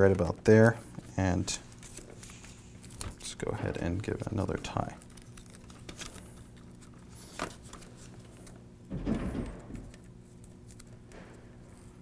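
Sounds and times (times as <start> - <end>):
cables rustling and crinkling: 0.0 - 8.7.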